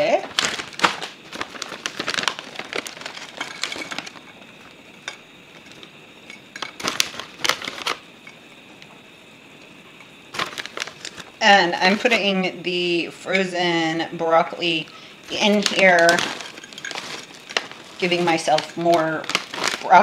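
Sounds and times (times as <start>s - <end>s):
plastic bag crinkling: 0.0s - 8.0s, 10.3s - 12.2s, 15.2s - 20.0s.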